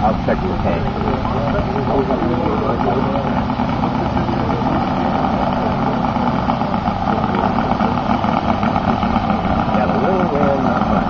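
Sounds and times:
model aircraft engine idling: 0:00.0 - 0:11.0.

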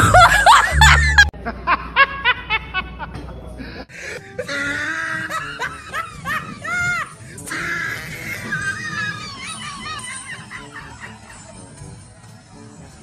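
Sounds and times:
background music: 0:00.0 - 0:02.4, 0:03.9 - 0:13.0
woman laughing: 0:00.0 - 0:03.0, 0:04.4 - 0:07.2, 0:08.3 - 0:11.6.

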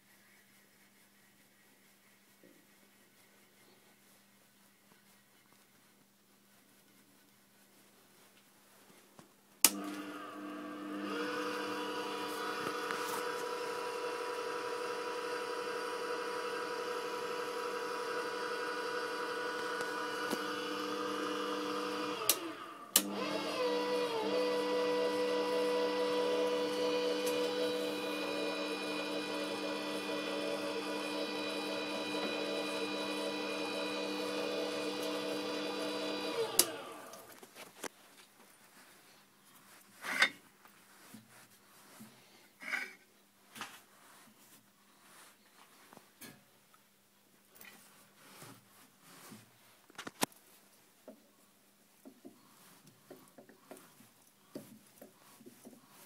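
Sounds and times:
lathe motor whine: 0:09.7 - 0:37.4.

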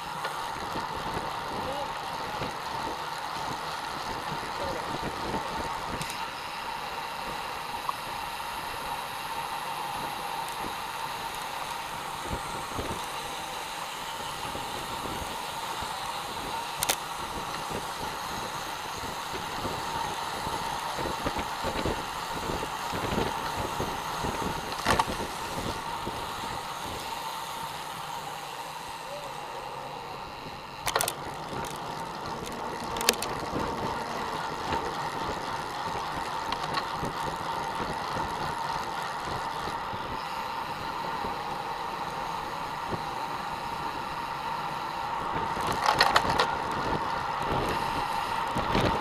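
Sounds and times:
tyres rushing on asphalt: 0:00.0 - 0:49.0
wind buffeting microphone: 0:17.2 - 0:27.0, 0:45.2 - 0:49.0.

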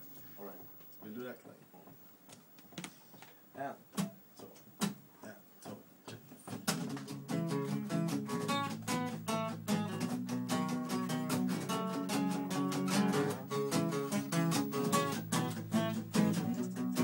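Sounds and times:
acoustic guitar strumming chords: 0:06.6 - 0:17.0.

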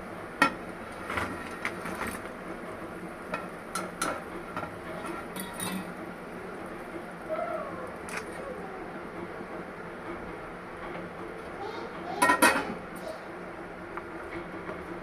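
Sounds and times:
utensils clinking on metal pan: 0:05.0 - 0:05.9.

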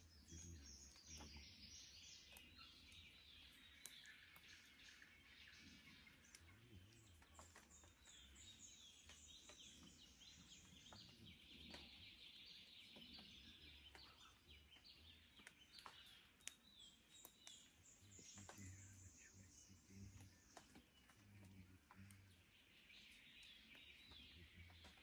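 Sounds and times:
small birds chirping: 0:00.0 - 0:25.0
sharp clicks: 0:15.3 - 0:18.6.

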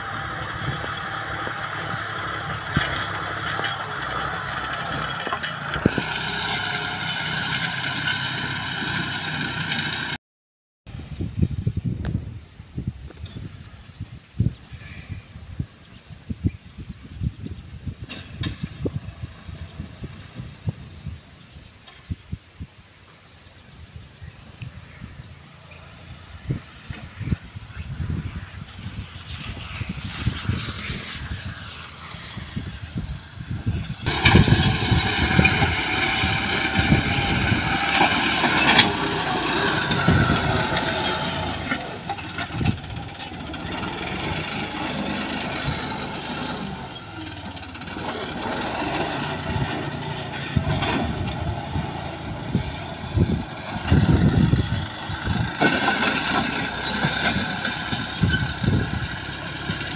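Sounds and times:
tractor diesel engine under load: 0:00.0 - 0:10.2, 0:10.9 - 0:59.9.

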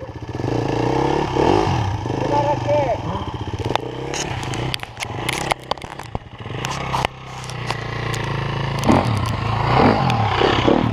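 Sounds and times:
dirt bike engine revving: 0:00.0 - 0:10.9
sharp clicks: 0:03.6 - 0:10.3.

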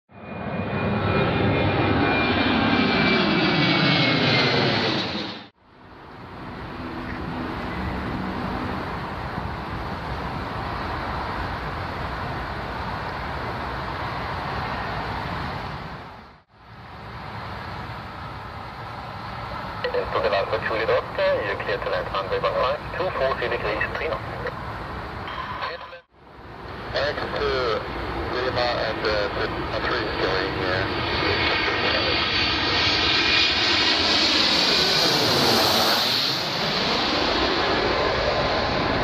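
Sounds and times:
aircraft passing with falling whine: 0:00.1 - 0:39.0
turboprop engines at takeoff power: 0:00.1 - 0:39.0.

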